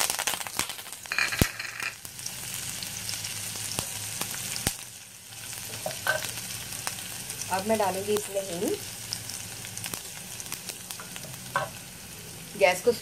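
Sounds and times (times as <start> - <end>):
spices sizzling in hot oil: 0.0 - 13.0.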